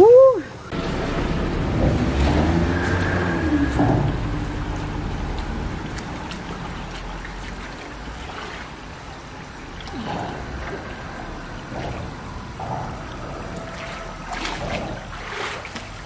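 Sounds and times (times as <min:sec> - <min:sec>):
steady low rumble: 0:00.5 - 0:16.0
stream water splashing and trickling: 0:00.5 - 0:16.0.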